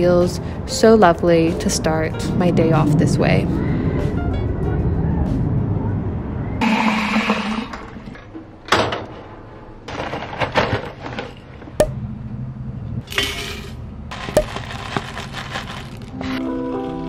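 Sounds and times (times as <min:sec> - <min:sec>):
paper packet rustling: 0:14.1 - 0:17.0.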